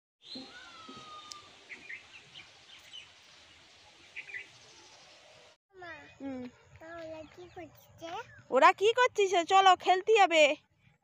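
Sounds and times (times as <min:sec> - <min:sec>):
falling bird whistle: 0:00.2 - 0:02.0
birds chirping: 0:00.2 - 0:09.4
steady outdoor hiss: 0:00.2 - 0:10.5.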